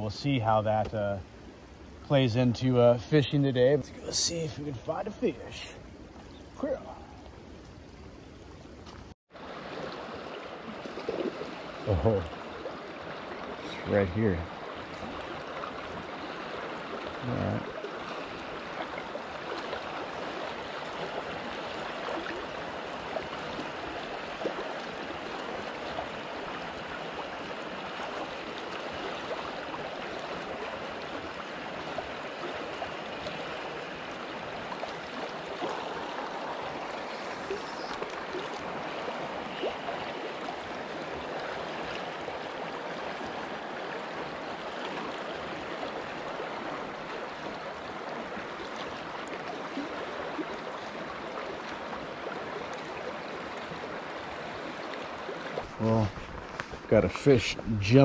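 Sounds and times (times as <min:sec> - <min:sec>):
river water rushing over rocks: 0:14.5 - 0:56.9.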